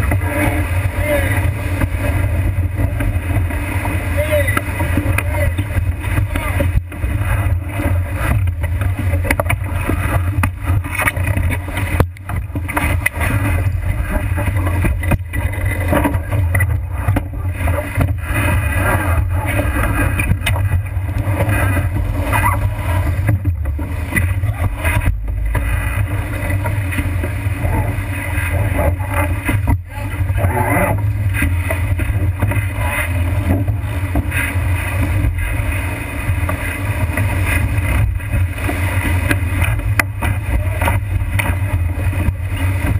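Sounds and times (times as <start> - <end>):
water splashing along hull: 0.0 - 42.9
wind buffeting microphone: 0.0 - 42.9.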